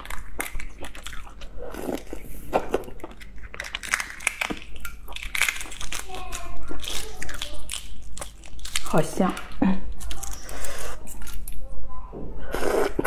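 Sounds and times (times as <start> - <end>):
biting and chewing: 0.0 - 11.6
eggshell cracking: 2.8 - 9.0.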